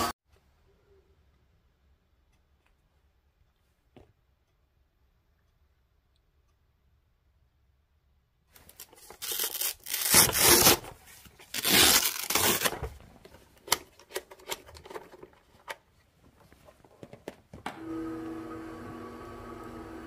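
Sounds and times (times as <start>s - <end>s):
hook-and-loop fastener ripping: 8.6s - 12.8s.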